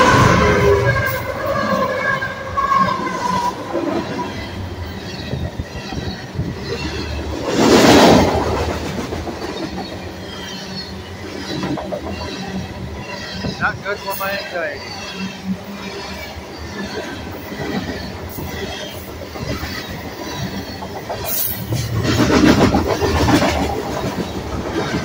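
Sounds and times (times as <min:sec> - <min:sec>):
freight train rumbling and clattering: 0:00.0 - 0:25.0.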